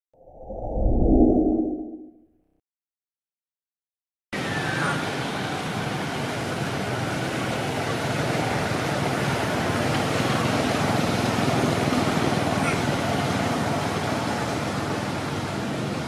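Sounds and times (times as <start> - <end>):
rushing outdoor background noise: 4.4 - 16.0.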